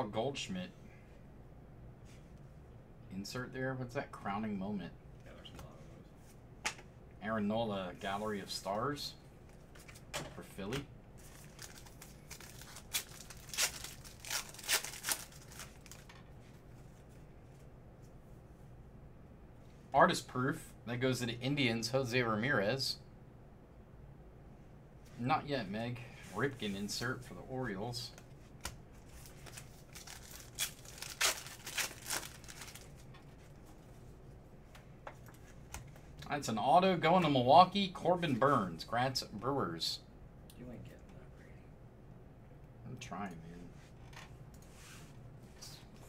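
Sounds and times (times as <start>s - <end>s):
trading cards flipped and shuffled: 11.2s - 16.2s
foil wrapper tearing and crinkling: 11.3s - 16.1s, 29.1s - 33.0s.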